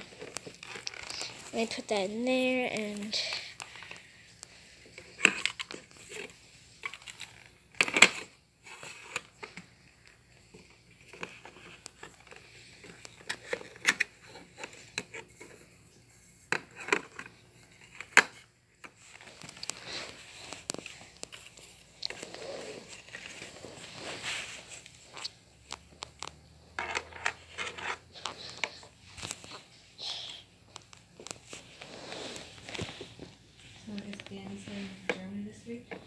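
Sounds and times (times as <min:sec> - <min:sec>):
plastic packaging crinkling: 0:00.0 - 0:01.8.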